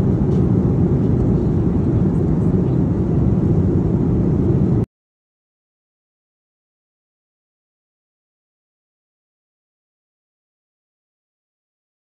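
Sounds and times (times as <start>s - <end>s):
airliner cabin engine rumble: 0.0s - 4.9s.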